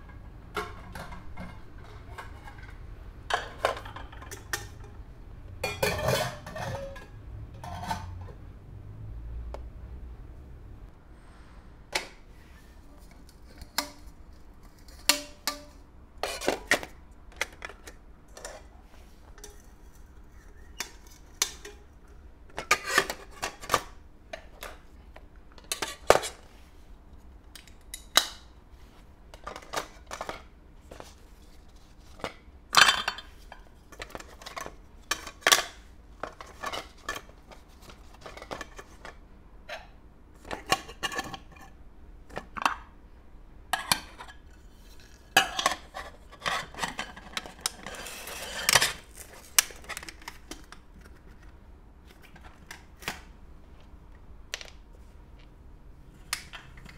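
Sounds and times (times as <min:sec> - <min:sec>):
metal cookware clinking and scraping: 0:00.0 - 0:05.0, 0:05.6 - 0:08.4, 0:19.3 - 0:21.9.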